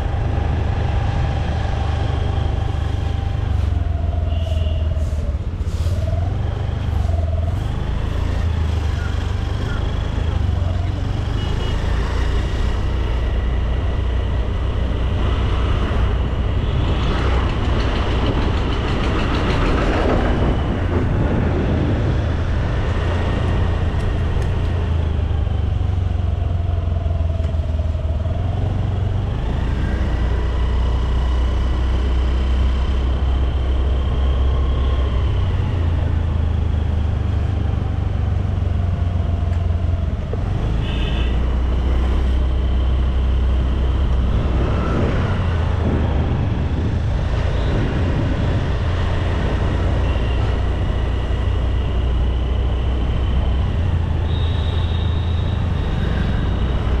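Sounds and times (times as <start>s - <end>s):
road and wind noise: 0.0s - 57.0s.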